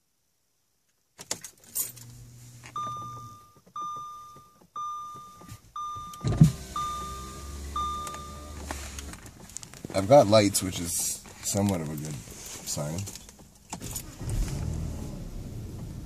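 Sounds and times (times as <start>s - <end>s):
car warning chime: 2.7s - 9.0s.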